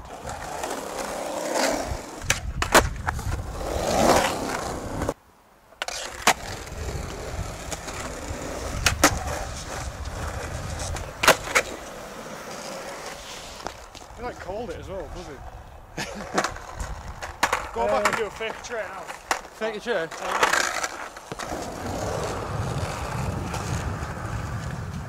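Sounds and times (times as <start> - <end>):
skateboard wheels rolling on concrete: 0.0 - 25.0
skateboard clacking on ground: 2.2 - 3.4, 5.8 - 14.2, 16.1 - 25.0.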